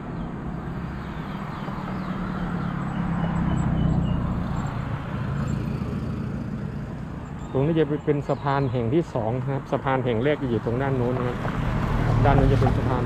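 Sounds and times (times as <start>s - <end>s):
vehicle driving past on bridge: 0.0s - 7.3s, 10.4s - 13.0s.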